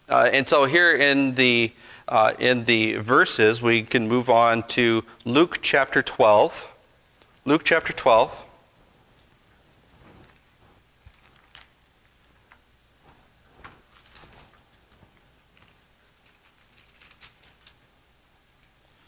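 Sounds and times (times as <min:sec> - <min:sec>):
thin pages turning: 0:13.0 - 0:17.9.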